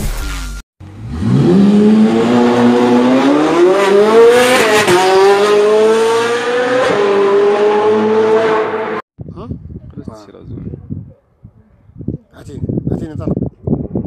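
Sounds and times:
sports car engine accelerating: 0.8 - 9.0.

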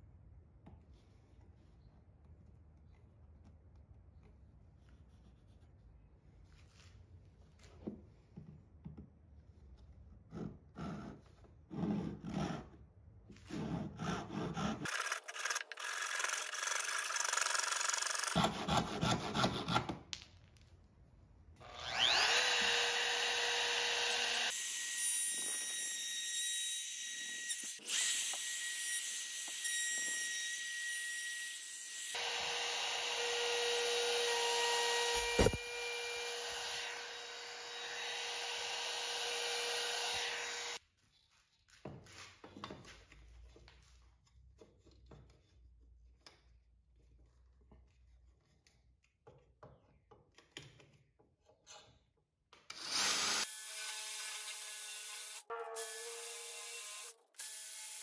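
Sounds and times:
hand saw rasping through wood: 13.5 - 19.9
wood router whining: 21.6 - 31.4, 32.0 - 40.8.

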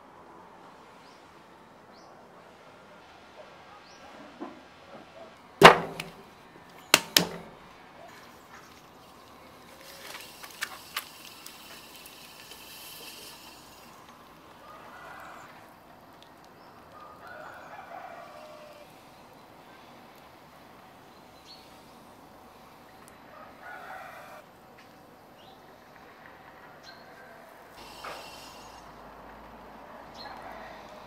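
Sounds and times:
faint rooster crowing: 14.5 - 15.8, 16.8 - 19.9, 23.3 - 24.5, 26.2 - 27.8, 29.8 - 31.0.

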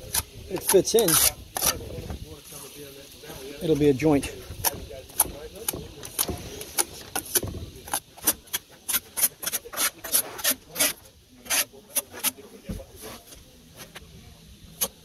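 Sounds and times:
trowel scraping mortar: 0.0 - 2.1, 3.6 - 12.4.

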